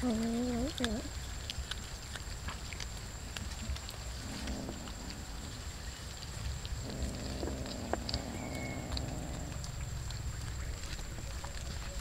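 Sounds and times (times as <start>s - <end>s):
cats chewing and crunching: 0.0s - 12.0s
faint low cat growl: 3.6s - 5.7s, 6.8s - 9.8s.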